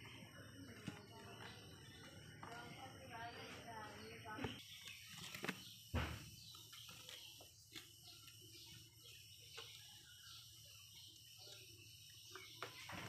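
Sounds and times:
sharp thump: 5.9 - 6.3.

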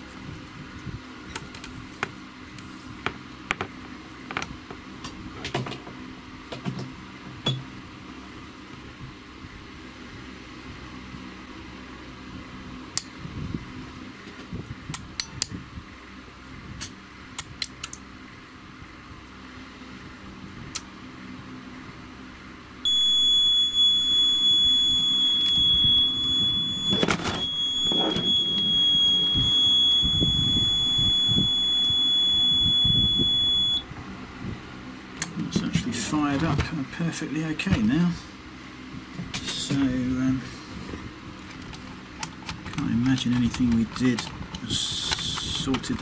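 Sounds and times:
high-pitched electronic beep: 22.9 - 33.8.

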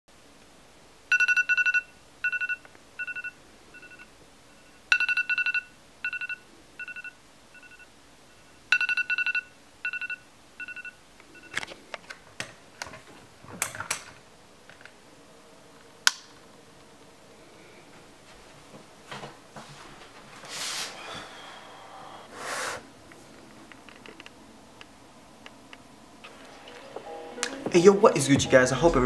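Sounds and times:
phone alarm pulsing beeps: 1.1 - 7.9, 8.7 - 11.6
phone handling clicks and rustling: 11.5 - 15.0.

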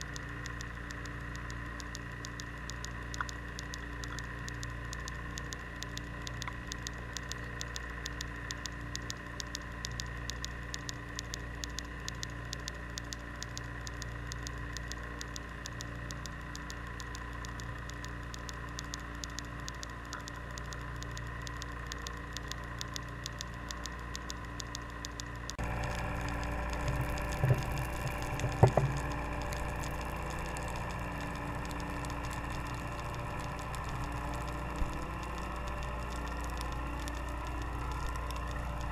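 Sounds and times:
faint steady tones: 0.0 - 38.9
low underwater hum: 0.0 - 38.9
rapid ticking: 0.0 - 38.9
knocks: 28.5 - 29.0.

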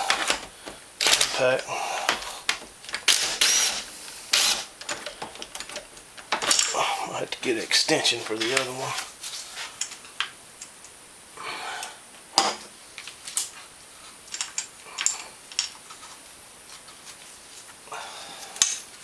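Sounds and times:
metal tools clinking: 4.4 - 6.9.

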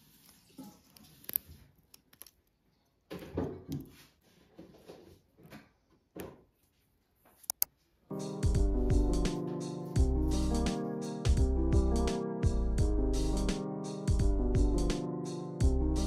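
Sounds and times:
paper rustling: 0.0 - 2.4.

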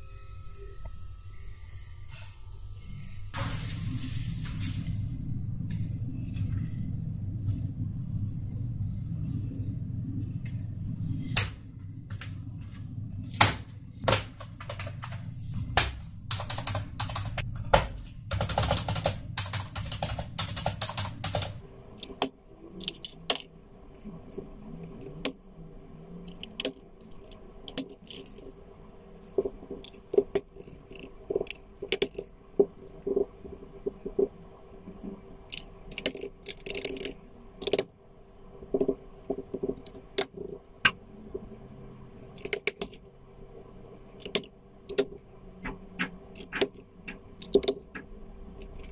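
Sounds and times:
steady low hum: 0.0 - 48.9
low rumble: 3.3 - 14.1
keyboard keys clicking: 16.3 - 17.4, 18.3 - 22.2.

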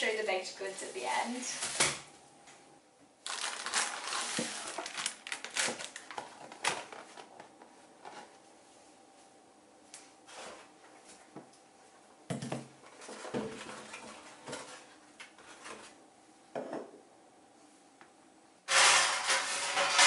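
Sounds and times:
items set down on countertop: 16.5 - 17.0.

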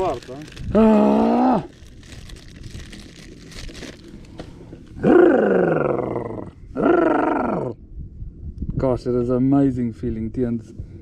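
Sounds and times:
plastic bag crinkling: 0.0 - 4.4.

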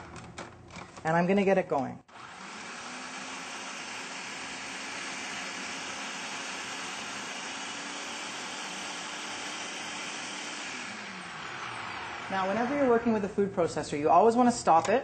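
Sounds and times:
food processor running: 2.1 - 13.2.

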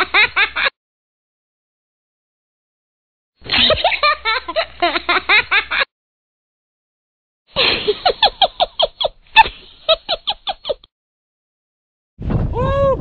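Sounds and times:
high-pitched laughter: 7.6 - 10.9.

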